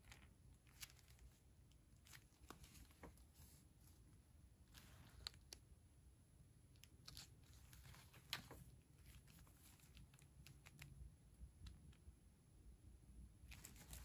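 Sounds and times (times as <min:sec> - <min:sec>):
plastic sachet crinkling: 0:00.0 - 0:03.2, 0:06.8 - 0:11.0, 0:13.5 - 0:14.0.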